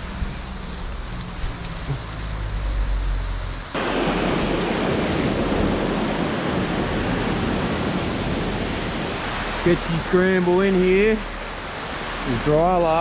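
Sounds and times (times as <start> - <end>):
waterfall rushing: 3.8 - 13.0.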